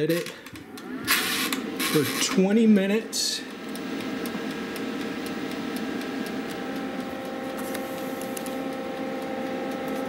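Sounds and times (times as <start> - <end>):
electrical hum: 0.0 - 10.0
light ticking: 3.4 - 10.0.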